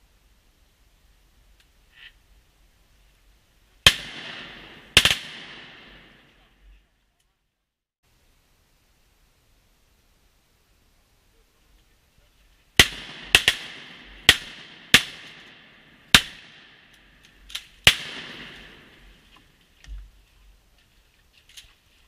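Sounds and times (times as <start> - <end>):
shotgun shots echoing: 3.8 - 6.4, 12.8 - 19.2.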